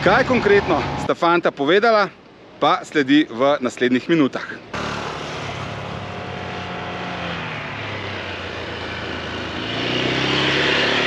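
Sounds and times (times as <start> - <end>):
small motorcycle engines running: 4.7 - 11.0.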